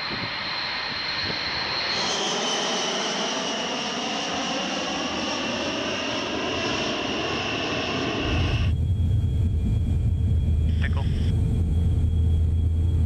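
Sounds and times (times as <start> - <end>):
jet engines roaring overhead: 0.0 - 13.0.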